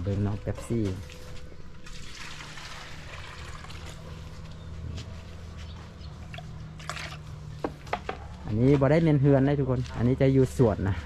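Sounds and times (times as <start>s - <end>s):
water trickling: 1.8s - 4.3s.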